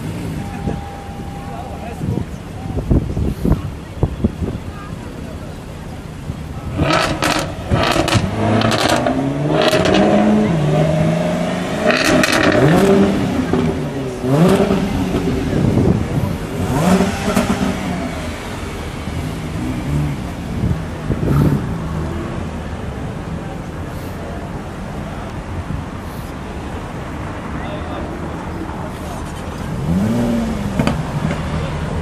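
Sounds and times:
sports car engine revving: 0:06.6 - 0:22.6, 0:29.1 - 0:32.0.

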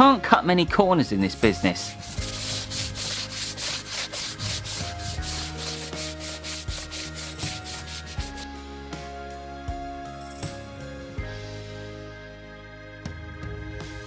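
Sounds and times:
brush scrubbing wet tyre: 0:01.6 - 0:08.4.

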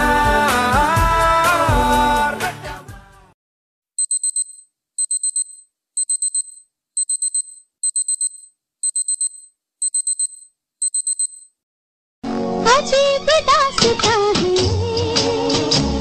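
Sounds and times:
alarm clock beeping: 0:04.0 - 0:11.6.

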